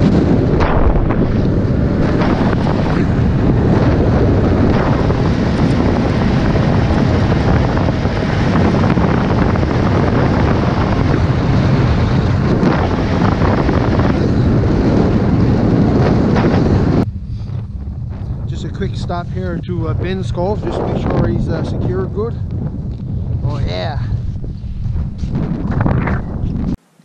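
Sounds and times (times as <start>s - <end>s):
snowmobile engine running: 0.0s - 26.8s
wind buffeting microphone: 0.0s - 26.8s.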